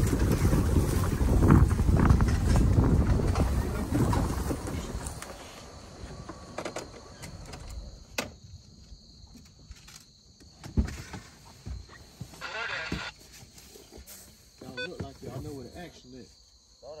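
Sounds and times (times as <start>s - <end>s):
vehicle rumble and wind noise: 0.0s - 14.0s.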